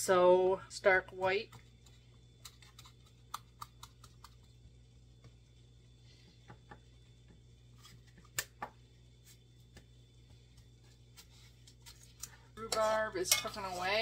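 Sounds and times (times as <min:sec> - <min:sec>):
low steady hum: 0:00.0 - 0:14.0
hands patting crumb crust: 0:06.3 - 0:12.4.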